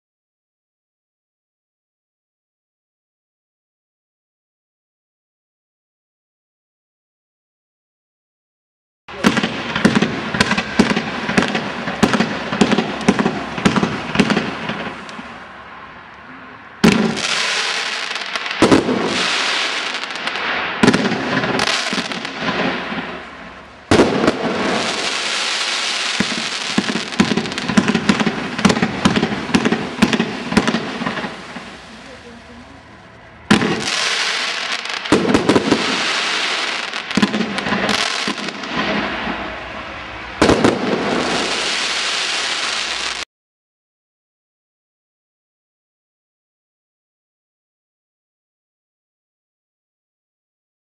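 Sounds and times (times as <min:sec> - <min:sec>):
fireworks launch and burst pops: 0:09.1 - 0:15.3, 0:16.8 - 0:23.3, 0:23.9 - 0:32.2, 0:33.5 - 0:39.5, 0:40.4 - 0:43.3
fireworks crackling: 0:09.1 - 0:15.6, 0:16.4 - 0:43.3.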